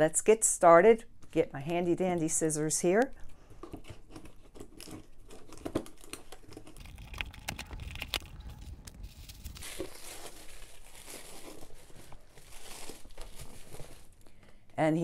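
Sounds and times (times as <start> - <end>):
plastic bag rustling: 3.9 - 14.5
tissue paper rustling: 5.9 - 14.3.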